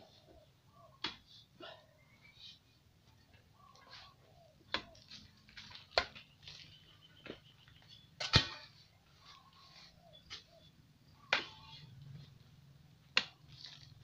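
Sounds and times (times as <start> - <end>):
digging tool striking hard earth: 8.2 - 8.8.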